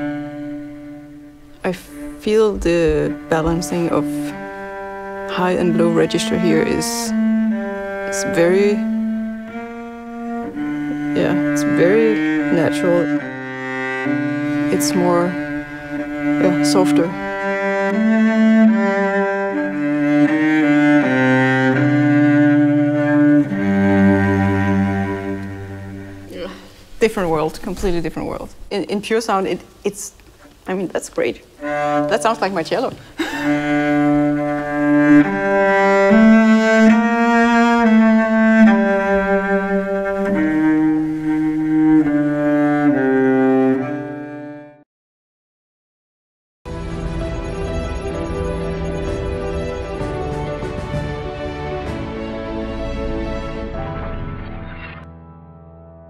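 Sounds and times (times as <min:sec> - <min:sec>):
solo cello slow melody: 0:00.0 - 0:28.4, 0:31.5 - 0:44.8.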